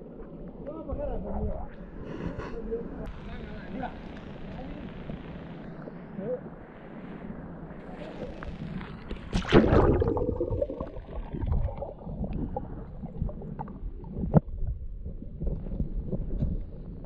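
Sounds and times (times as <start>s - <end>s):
water sloshing and gurgling: 8.1s - 17.0s
loud splash in water: 9.3s - 11.7s.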